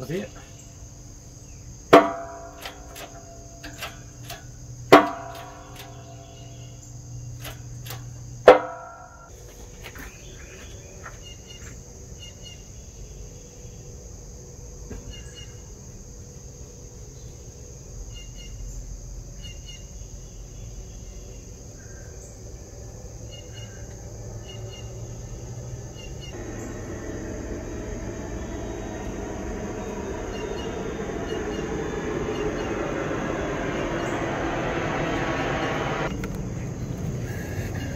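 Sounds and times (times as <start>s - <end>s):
sharp metallic clank: 1.9s - 6.7s, 7.4s - 9.3s
faint chirps: 23.2s - 37.9s
rumbling noise: 25.3s - 37.9s
steady high hiss: 26.2s - 37.9s.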